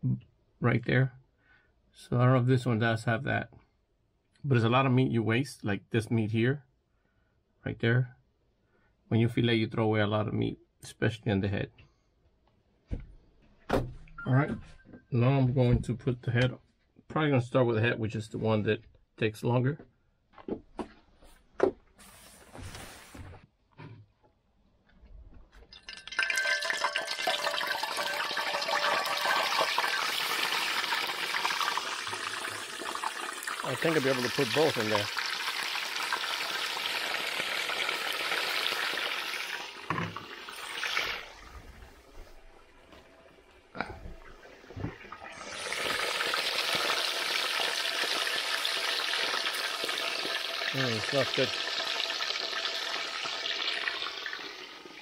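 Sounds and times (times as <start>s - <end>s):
fish sizzling in hot oil: 25.8s - 41.4s, 45.3s - 55.0s.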